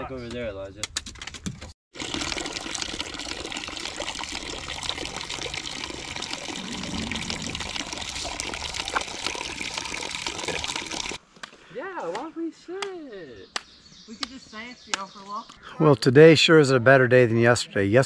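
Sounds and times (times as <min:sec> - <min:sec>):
water running from a spigot: 0:01.9 - 0:11.2.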